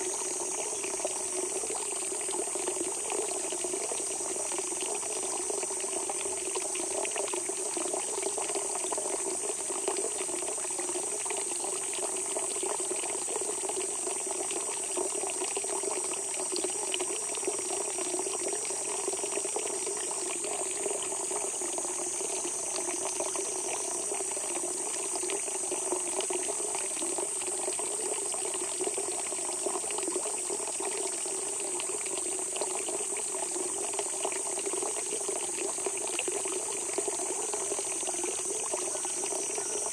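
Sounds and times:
high-pitched insect trill: 0.0s - 2.3s, 15.7s - 26.3s, 35.7s - 39.9s
spring water gushing: 0.0s - 39.9s.

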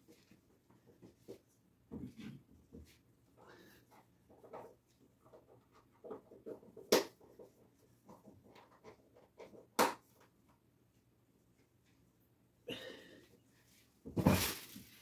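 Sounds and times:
person breathing: 3.4s - 4.1s, 12.7s - 13.7s.

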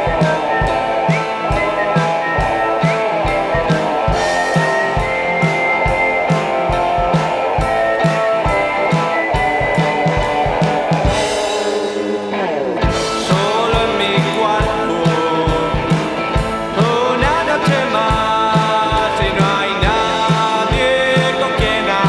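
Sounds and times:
falling pitch glide: 0.0s - 13.8s
drum kit beat: 0.0s - 22.0s
electric guitar: 0.0s - 22.0s
person singing: 0.0s - 22.0s.

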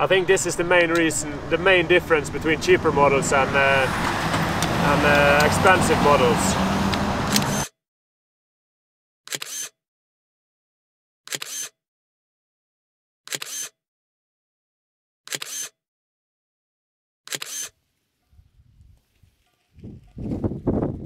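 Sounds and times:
camera shutter clicks: 7.3s - 7.7s, 9.3s - 9.7s, 11.3s - 11.8s, 13.3s - 13.8s, 15.3s - 15.8s, 17.3s - 17.7s.

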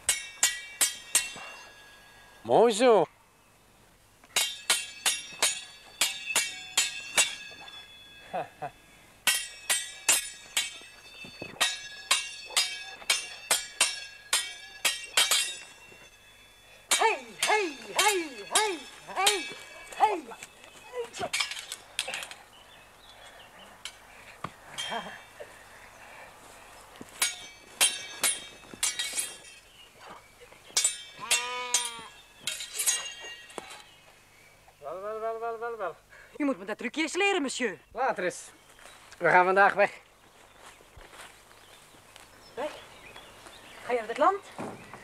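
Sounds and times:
fencing swords clashing: 0.0s - 1.6s, 4.3s - 8.4s, 9.2s - 16.1s, 16.9s - 22.4s, 27.2s - 29.8s, 30.7s - 34.0s.

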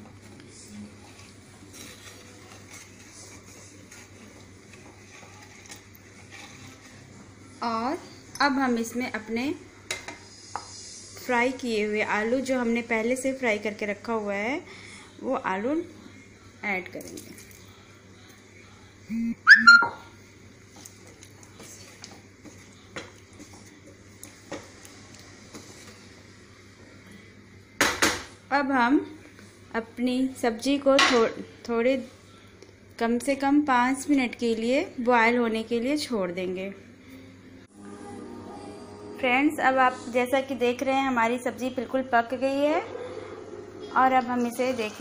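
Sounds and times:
spatula scraping in pan: 1.1s - 7.1s
falling pitched call: 19.4s - 20.0s.

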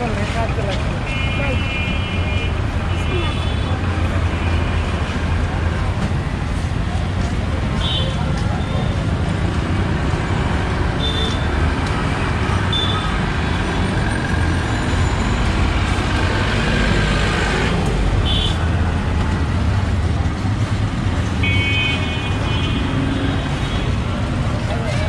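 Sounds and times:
traffic engines rumbling: 0.0s - 25.0s.

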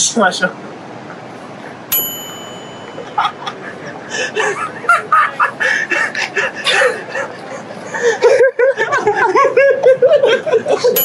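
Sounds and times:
short bright ding: 1.9s - 3.2s
man laughing high-pitched: 3.0s - 11.0s.

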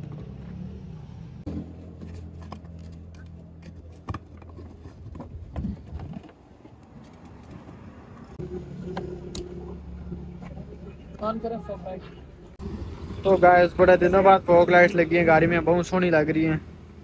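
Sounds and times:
engine idling: 8.1s - 15.4s.

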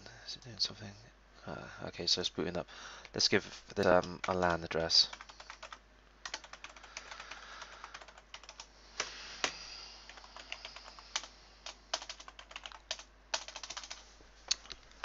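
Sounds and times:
typing on a computer keyboard: 5.1s - 8.7s, 9.4s - 14.0s.

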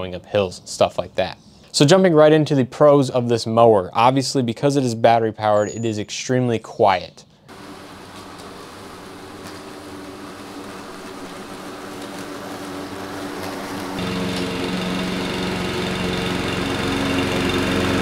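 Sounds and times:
electric lawn mower humming: 7.5s - 18.0s
petrol push mower engine: 7.5s - 18.0s.

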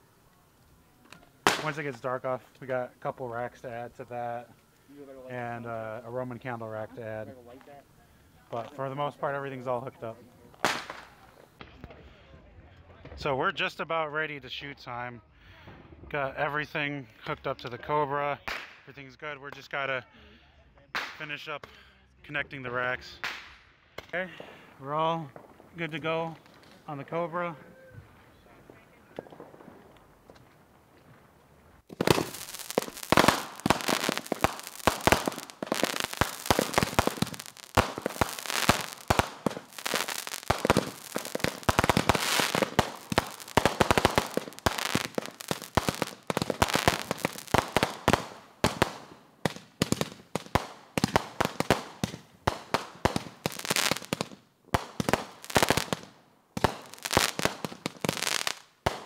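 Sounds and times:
fireworks bangs and crackling: 1.2s - 4.5s, 8.5s - 12.0s, 23.2s - 27.4s, 28.0s - 59.0s.

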